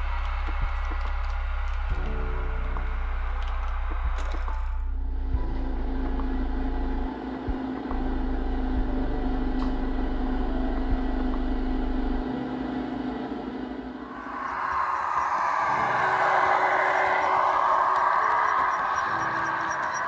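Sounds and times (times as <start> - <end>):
idling vehicle engines humming: 5.4 - 14.0.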